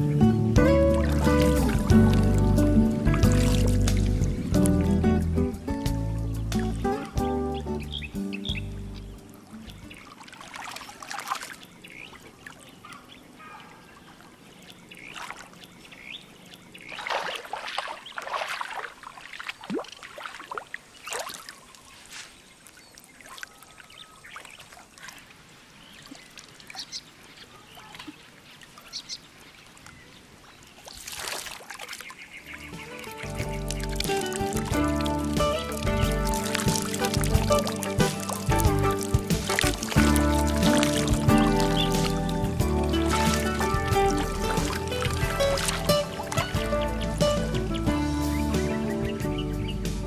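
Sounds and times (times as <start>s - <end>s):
water trickling: 0.0s - 48.9s
river water splashing: 0.0s - 50.0s.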